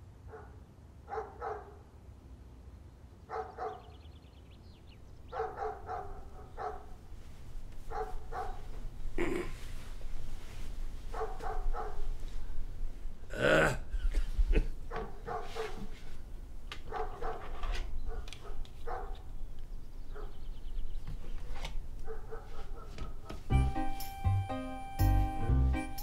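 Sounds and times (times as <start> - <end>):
dog barking: 0.3 - 1.9, 3.3 - 3.9, 5.3 - 7.0, 7.9 - 8.7, 11.1 - 12.1, 14.9 - 15.9, 16.9 - 17.5, 18.1 - 19.2, 20.1 - 20.4, 22.0 - 23.4.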